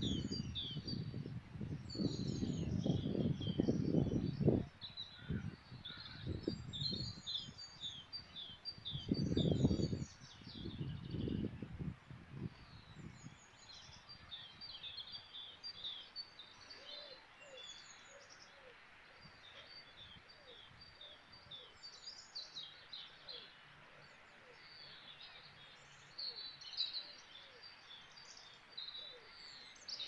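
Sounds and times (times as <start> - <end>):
songbirds singing and chirping: 0.0 - 30.0
steady background hiss: 11.5 - 30.0.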